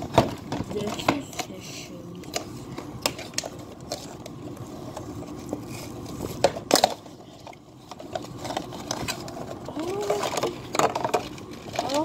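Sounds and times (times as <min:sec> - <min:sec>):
packaging crinkles and snaps: 0:02.2 - 0:12.0
cardboard packaging clicks and scrapes: 0:02.3 - 0:12.0.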